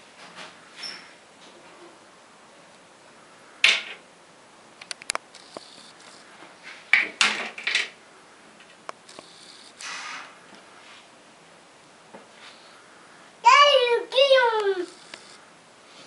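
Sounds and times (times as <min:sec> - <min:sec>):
plastic toys knocking on wooden shelf: 0:03.6 - 0:04.0.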